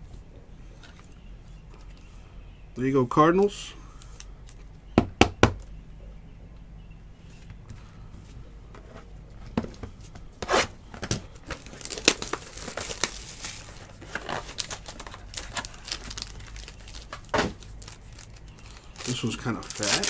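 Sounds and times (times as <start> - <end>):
plastic wrapping crinkling and tearing: 11.4 - 20.0.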